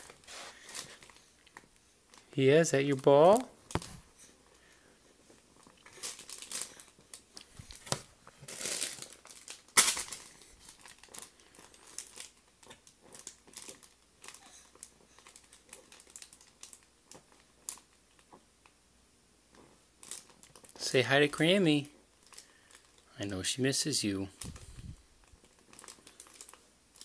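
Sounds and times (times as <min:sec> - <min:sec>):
fabric play mat crinkling: 0:00.0 - 0:02.3, 0:03.0 - 0:18.3.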